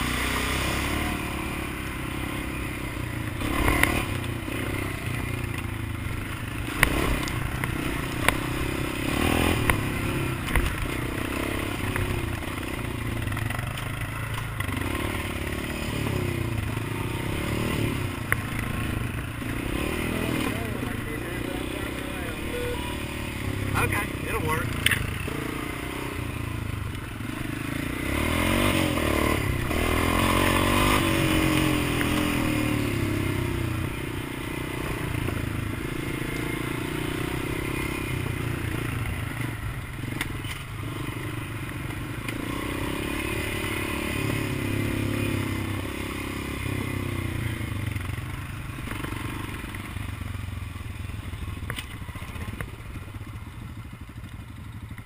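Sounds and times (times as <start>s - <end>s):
atv engine running: 0.0s - 55.0s.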